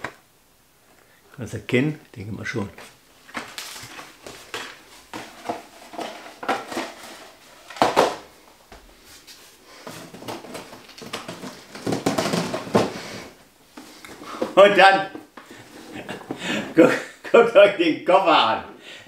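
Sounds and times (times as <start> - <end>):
rustling: 2.7 - 16.8
cardboard boxes knocking: 9.9 - 13.2.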